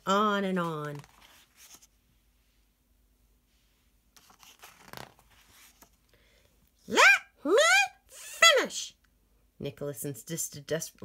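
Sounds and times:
paper page turning: 0.5 - 2.0, 4.2 - 6.0.

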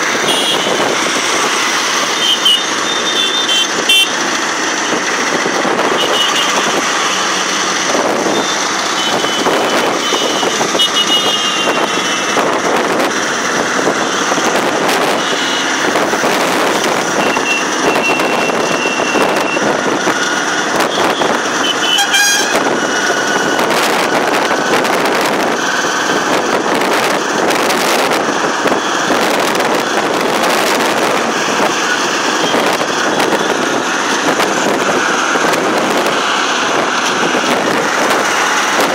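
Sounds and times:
wind and road noise: 0.0 - 38.9
vehicle horns tooting: 0.1 - 1.0, 2.0 - 4.2, 5.8 - 7.4, 8.2 - 12.3, 15.0 - 15.9, 17.2 - 19.7, 20.8 - 22.7.

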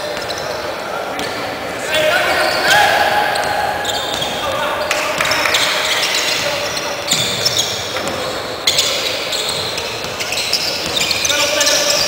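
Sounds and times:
sneaker squeaks: 0.0 - 12.0.

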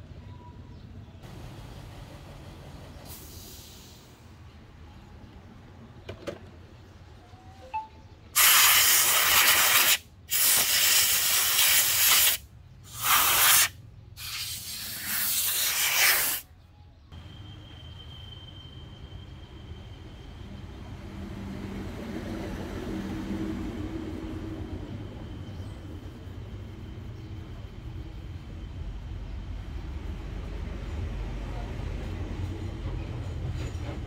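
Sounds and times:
pressurised air hissing blasts: 3.1 - 4.3, 8.4 - 16.4
faint high whine: 17.0 - 21.1.

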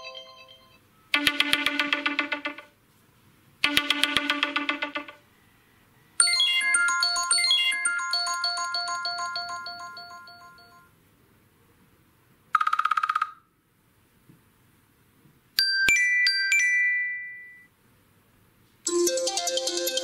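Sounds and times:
busy melodic ringtone: 0.0 - 2.7, 6.2 - 10.9, 18.9 - 20.0
repeating phone chime: 0.0 - 2.7, 6.2 - 10.9, 18.9 - 20.0
rapid buzzing trill: 1.1 - 2.7, 3.6 - 5.2.

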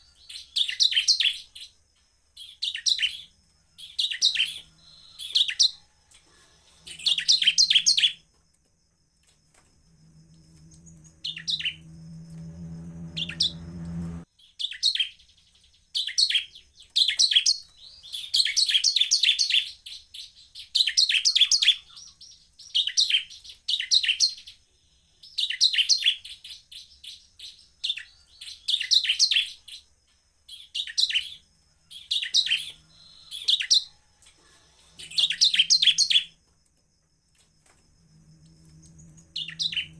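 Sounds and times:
bird chattering song: 2.4 - 5.8, 6.8 - 8.2, 10.7 - 11.9, 13.1 - 24.6, 35.0 - 36.3, 38.8 - 39.9
low hum: 9.7 - 14.3, 38.0 - 39.9.

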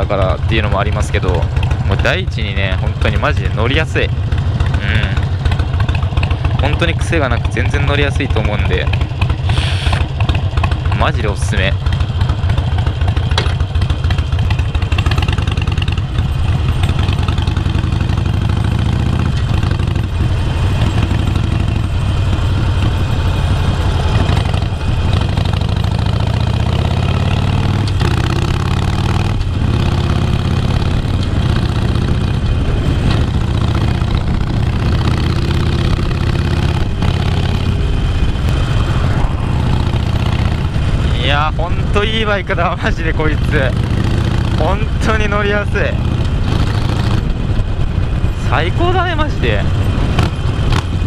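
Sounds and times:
motorcycle engine accelerating: 0.0 - 51.0
gear clunking: 11.9 - 15.2.

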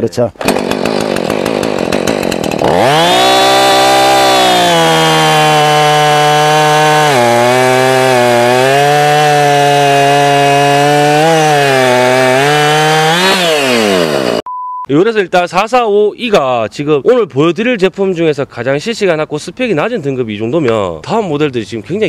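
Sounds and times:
chainsaw cutting log: 0.4 - 14.5.

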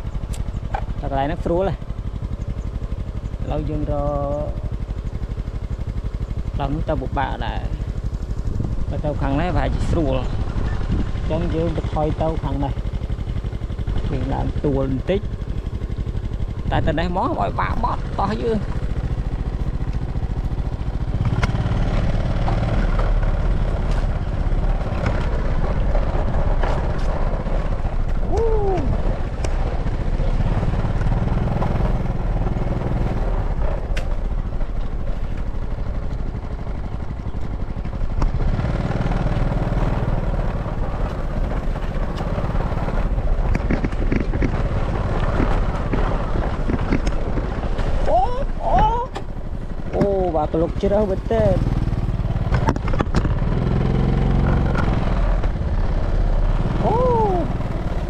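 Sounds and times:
scooter engine running: 0.0 - 58.0
knocks and rattles: 43.4 - 48.0, 52.5 - 53.4.

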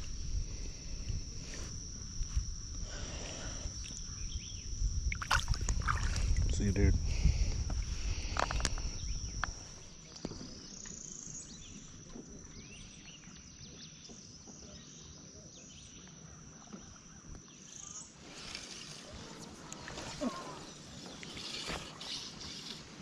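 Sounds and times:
insects droning: 0.0 - 23.0
faint bird chirps: 3.8 - 4.7, 8.8 - 22.8.

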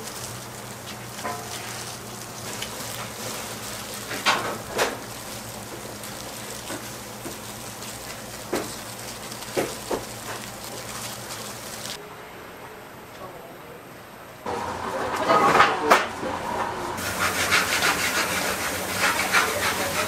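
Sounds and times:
plastic gloves rustling and tapping: 0.0 - 12.0
shop hiss and low hum: 0.0 - 20.0.

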